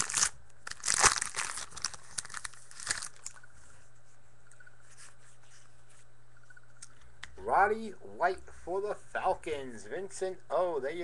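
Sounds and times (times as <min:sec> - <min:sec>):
wrapper rustling and crinkling: 0:00.0 - 0:03.4
faint low hum: 0:00.0 - 0:11.0.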